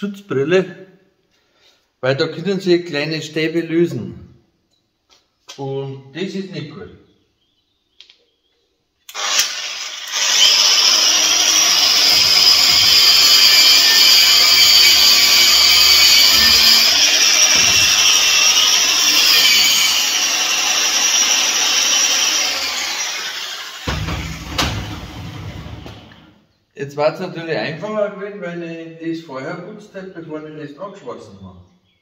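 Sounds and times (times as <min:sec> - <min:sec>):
angle grinder wire brushing metal: 0:10.0 - 0:23.9.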